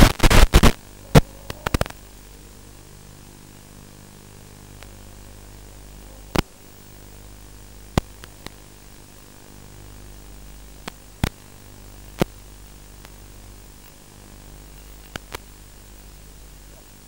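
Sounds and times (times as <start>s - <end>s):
crackling pops: 0.0s - 17.0s
radio static hiss and hum: 0.0s - 17.0s.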